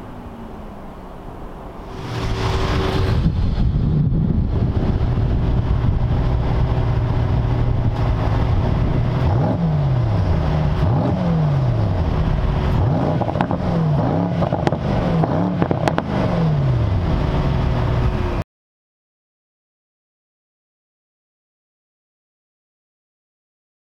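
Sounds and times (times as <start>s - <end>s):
car engine revving: 0.0s - 18.4s.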